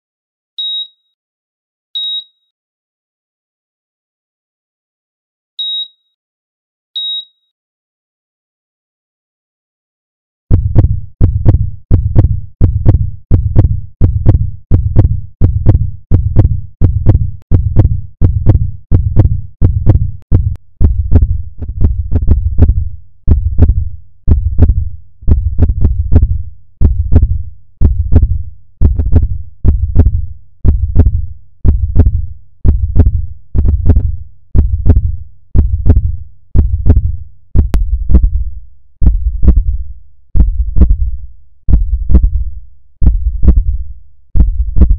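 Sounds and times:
heartbeat thumps: 0:10.5 - 0:44.9.

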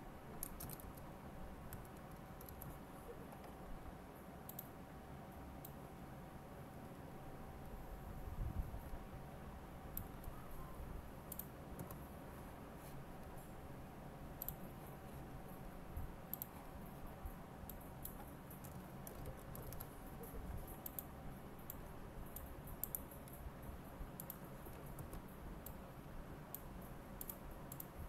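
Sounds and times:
steady low hum: 0:00.0 - 0:28.0
mouse and keyboard clicks: 0:00.3 - 0:01.1, 0:01.7 - 0:03.7, 0:11.3 - 0:12.0, 0:14.4 - 0:14.6, 0:16.3 - 0:16.6, 0:17.7 - 0:21.1, 0:21.7 - 0:23.4, 0:24.2 - 0:25.8, 0:26.5 - 0:28.0.

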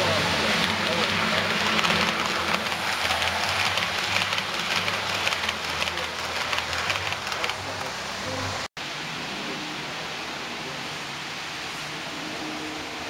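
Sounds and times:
model train wheels clicking: 0:00.0 - 0:07.9.

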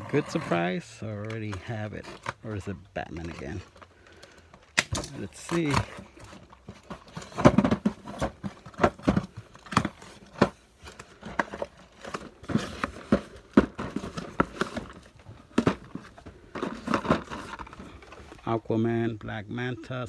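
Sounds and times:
plastic blister packs crinkling: 0:00.0 - 0:20.0
cardboard flaps knocking and scraping: 0:04.9 - 0:17.8.

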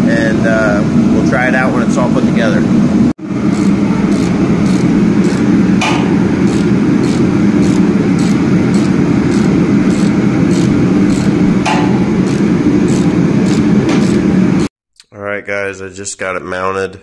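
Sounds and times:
loud low hum: 0:00.0 - 0:14.7
ratchet wrench clicking: 0:03.5 - 0:14.2.

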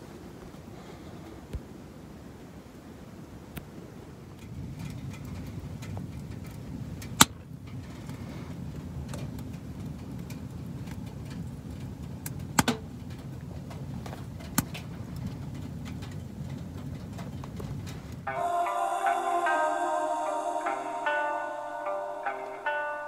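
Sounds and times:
wood fire rumbling and crackling: 0:03.8 - 0:18.3.

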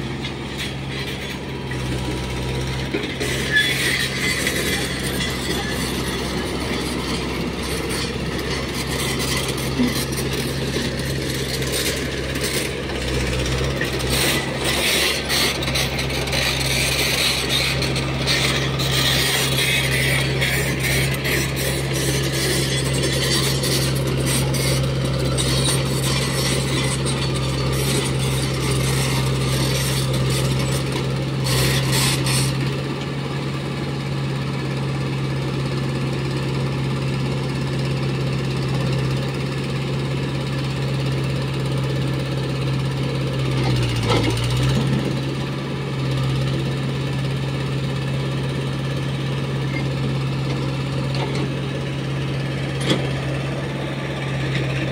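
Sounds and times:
excavator bucket rattling and scraping: 0:00.0 - 0:32.6, 0:43.5 - 0:45.2, 0:49.7 - 0:54.9
diesel engine hum: 0:00.0 - 0:54.9.

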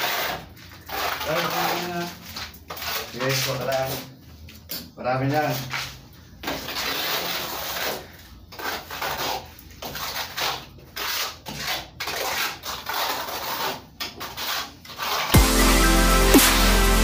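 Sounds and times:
trowel scraping plaster on wall: 0:00.0 - 0:04.2, 0:05.3 - 0:15.4.

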